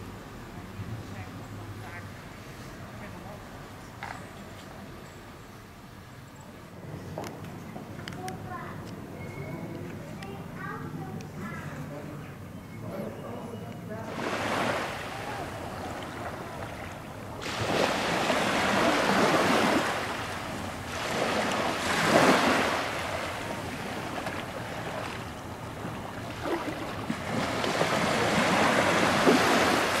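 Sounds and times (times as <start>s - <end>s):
small waves washing onto beach: 14.1s - 30.0s.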